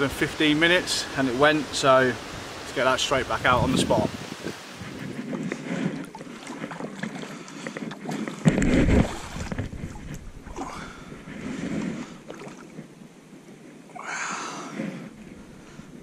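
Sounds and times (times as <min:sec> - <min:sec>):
water lapping: 0:00.0 - 0:16.0
splash into shallow water: 0:08.3 - 0:09.7.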